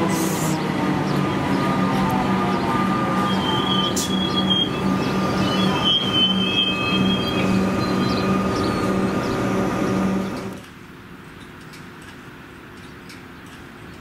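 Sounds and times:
electric train rumbling: 0:00.0 - 0:10.8
train wheel squeals: 0:01.3 - 0:10.5.

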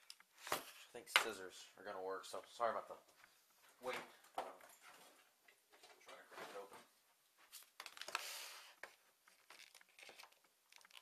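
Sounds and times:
plastic packaging rustling: 0:07.5 - 0:11.0.

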